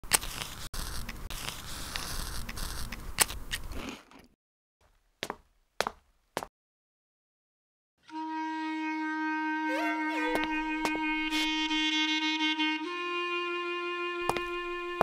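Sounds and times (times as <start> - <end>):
marker scratching on cardboard: 0.4 - 3.0.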